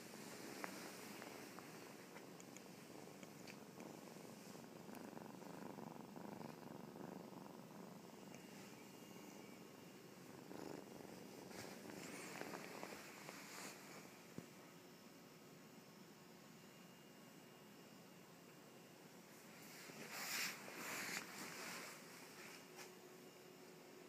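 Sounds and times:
kitten purring: 0:00.0 - 0:14.6, 0:19.6 - 0:22.7.

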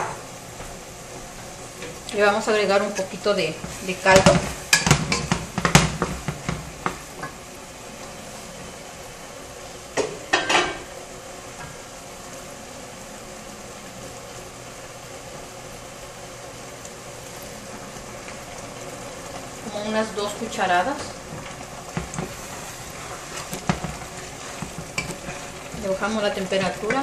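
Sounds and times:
sauce sizzling in a pot: 0:00.0 - 0:27.0
utensil scraping pot: 0:19.7 - 0:27.0.

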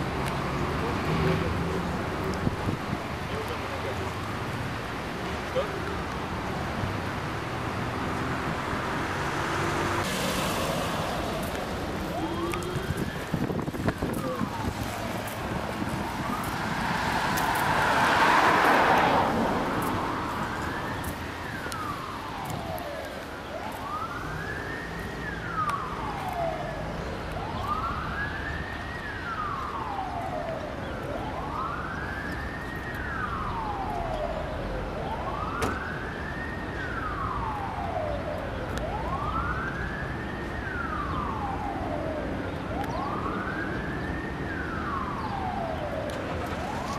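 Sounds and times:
emergency siren wailing: 0:00.0 - 0:46.9
street traffic noise: 0:00.0 - 0:46.9
rushing noise: 0:06.8 - 0:22.5.

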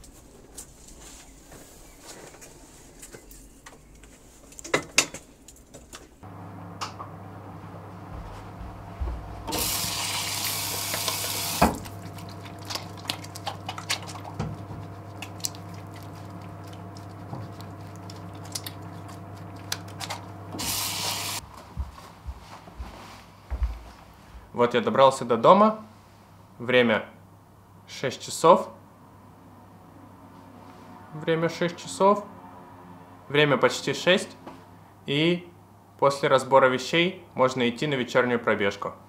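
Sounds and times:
steady low hum: 0:05.4 - 0:24.8
tap running into sink: 0:09.5 - 0:12.0
hands washing with splashing: 0:09.5 - 0:21.4.

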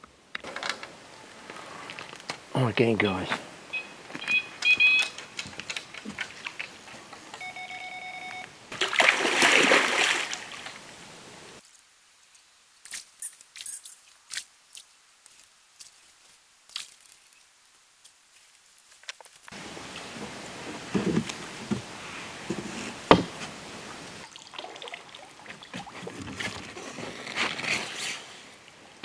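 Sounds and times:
bite alarm steady tone: 0:07.4 - 0:08.5.

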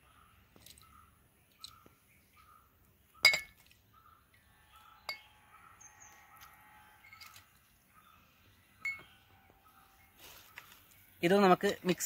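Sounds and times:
glass cup clinking on jug: 0:03.2 - 0:03.6.

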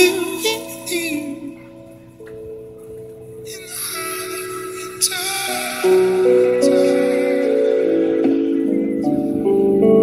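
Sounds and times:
music with sustained held notes: 0:00.0 - 0:10.0.

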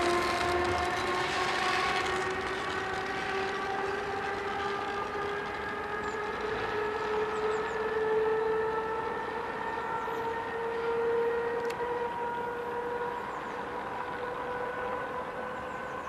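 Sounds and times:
train rushing on rails: 0:00.0 - 0:07.8
electric locomotive whine: 0:00.0 - 0:16.0.

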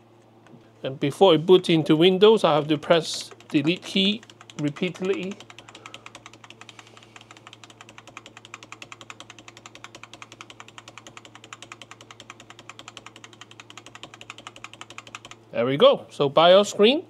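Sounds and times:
keyboard key tapped rapidly: 0:02.8 - 0:15.4.

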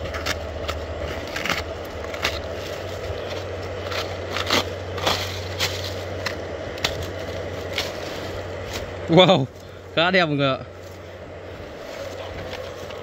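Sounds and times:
dry paper and leaves crackling: 0:00.0 - 0:13.0
steady low hum: 0:00.0 - 0:13.0.

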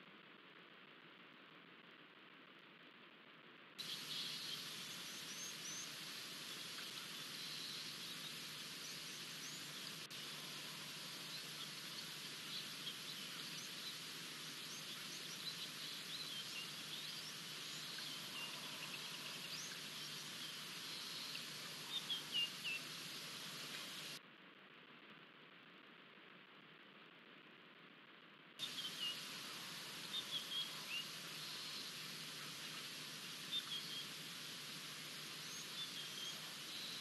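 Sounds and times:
birds chirping: 0:03.8 - 0:24.2, 0:28.6 - 0:37.0
bush ambience hiss: 0:03.8 - 0:24.2, 0:28.6 - 0:37.0.

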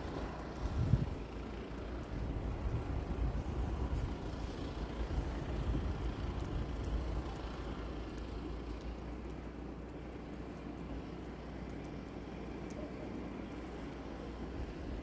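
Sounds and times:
wind buffeting microphone: 0:00.6 - 0:01.2.

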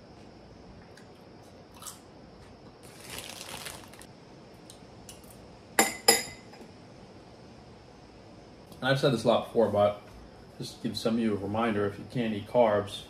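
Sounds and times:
crunchy chewing: 0:01.0 - 0:02.1
spoon clinking ceramic bowl: 0:05.8 - 0:06.6.

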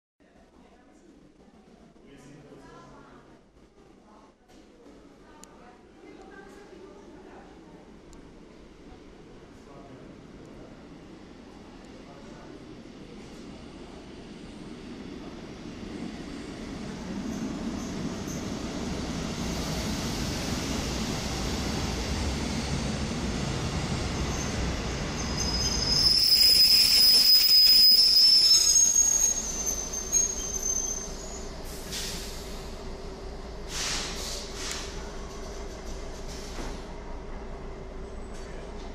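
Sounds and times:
railcar rumbling: 0:06.3 - 0:38.9
high-pitched brake squeal: 0:24.3 - 0:32.3.

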